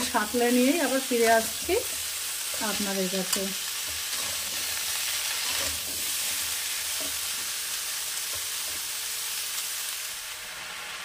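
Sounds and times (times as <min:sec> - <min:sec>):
vegetables sizzling in hot oil: 0:00.0 - 0:11.0
metal spoon stirring: 0:03.9 - 0:06.4.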